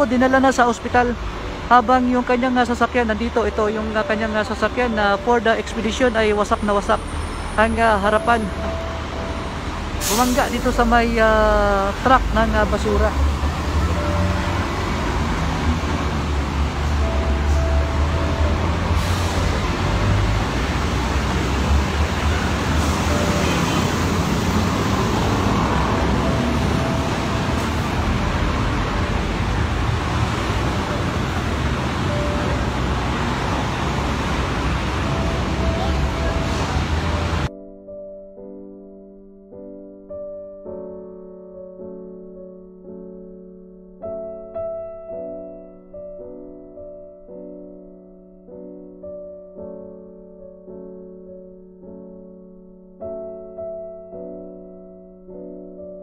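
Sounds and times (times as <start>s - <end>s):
roadside traffic rumble: 0.0s - 37.5s
slow piano music: 0.0s - 56.0s.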